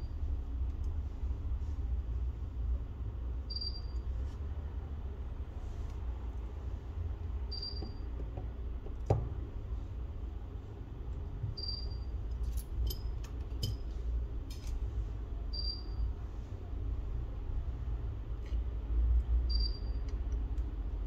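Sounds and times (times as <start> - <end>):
steady low rumble: 0.0 - 7.7.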